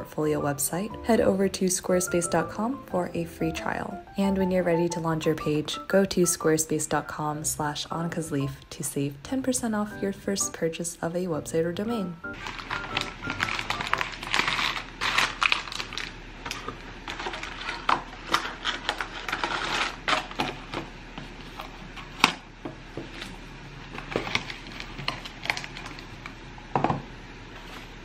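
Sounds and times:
packaging crinkling and rustling: 12.4 - 26.4.

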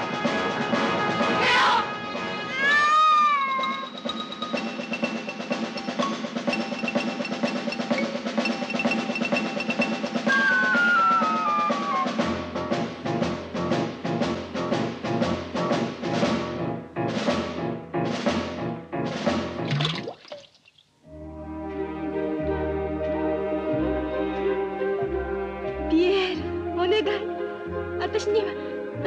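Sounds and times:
lively orchestral music with drums: 0.0 - 19.8.

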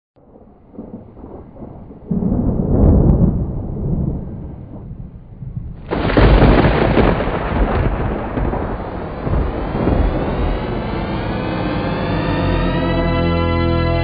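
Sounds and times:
jet aircraft roar: 7.4 - 14.0.

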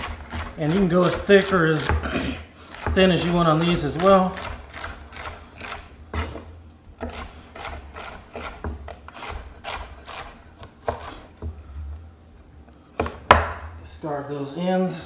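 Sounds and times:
knife slicing on cutting board: 2.7 - 11.4.

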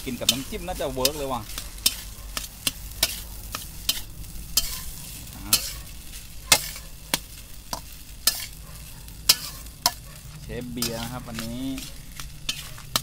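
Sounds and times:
soft frying hiss: 0.0 - 13.0
utensil scraping and knocking wok: 0.0 - 13.0.

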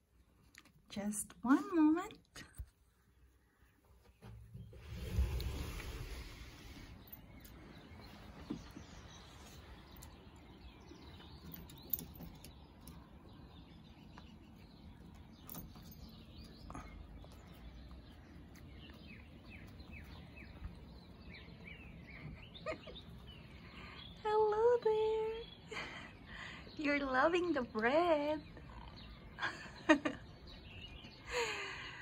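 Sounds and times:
bird chirps: 6.9 - 31.3.

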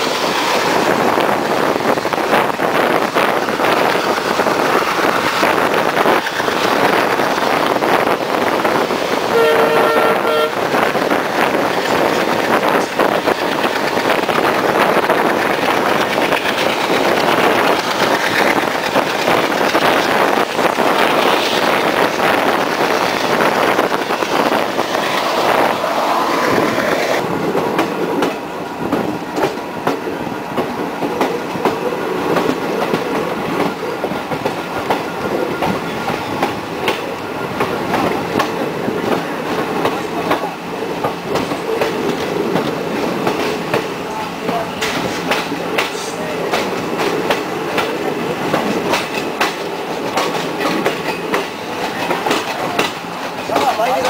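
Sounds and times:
train wheels clattering on rails: 0.0 - 9.5, 10.6 - 54.0
train horn: 9.3 - 10.7.

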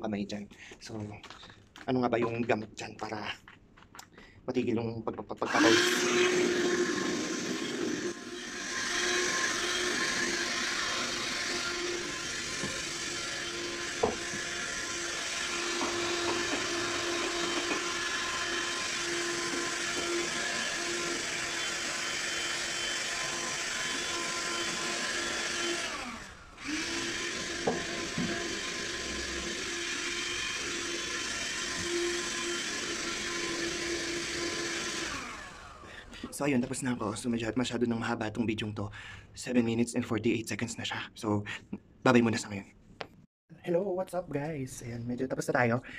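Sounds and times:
handheld vacuum cleaner whine: 5.5 - 35.9.

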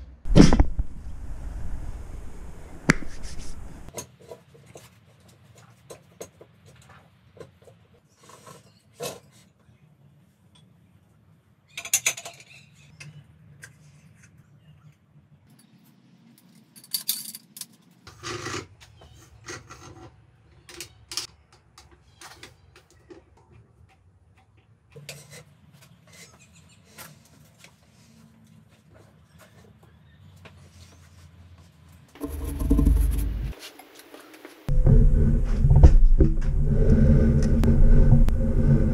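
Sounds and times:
low steady hum: 0.0 - 3.9, 32.2 - 33.6, 34.7 - 38.9
metal tools clinking: 16.7 - 17.8.

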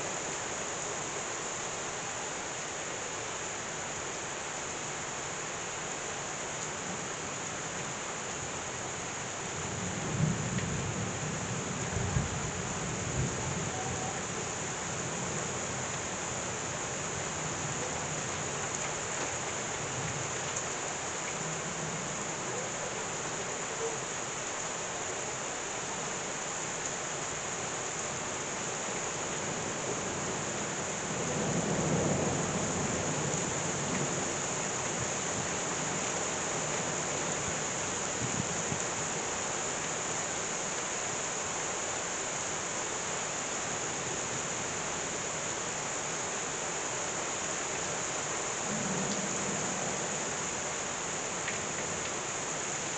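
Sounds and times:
heavy rain pouring: 0.0 - 52.9
low rumble of thunder: 9.6 - 15.9, 29.5 - 36.1, 48.6 - 50.6.

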